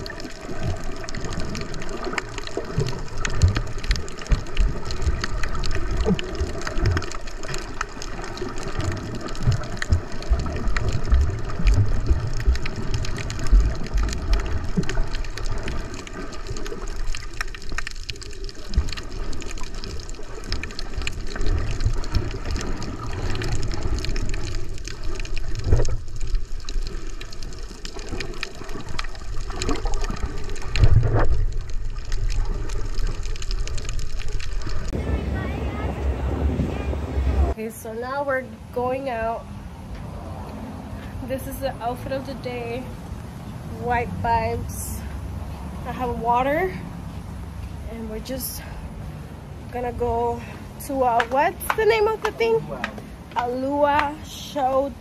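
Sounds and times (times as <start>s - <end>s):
small clicks and crackles: 0.0s - 35.0s
underwater water rushing: 0.0s - 37.6s, 48.6s - 55.0s.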